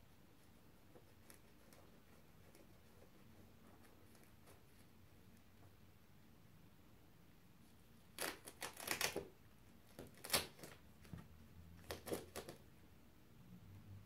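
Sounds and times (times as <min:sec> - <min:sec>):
tape pulled from cardboard crackling: 0:08.1 - 0:09.3, 0:09.9 - 0:10.8, 0:11.8 - 0:12.6.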